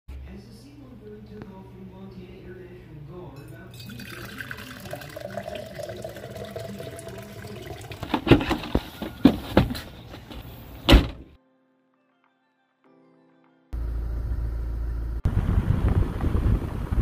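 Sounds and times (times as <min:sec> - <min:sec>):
coffee pouring into mug: 0:03.4 - 0:08.4
knocks and thumps of loading gear: 0:08.1 - 0:11.3.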